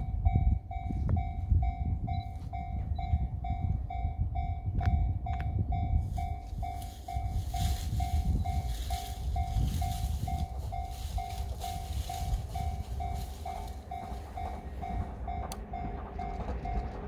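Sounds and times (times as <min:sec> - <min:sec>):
level crossing bell ringing: 0:00.0 - 0:15.5
low rumble: 0:00.0 - 0:17.0.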